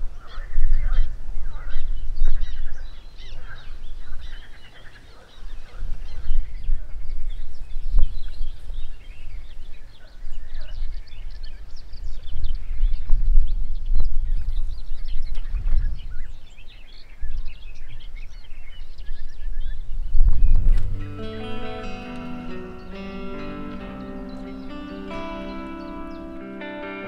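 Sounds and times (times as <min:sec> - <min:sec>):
wind rumbling on microphone: 0:00.0 - 0:21.3
birds singing and calling: 0:00.0 - 0:27.0.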